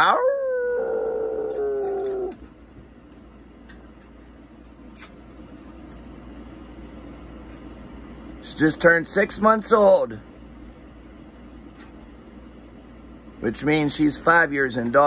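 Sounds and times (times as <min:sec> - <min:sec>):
dog howling: 0:00.0 - 0:02.4.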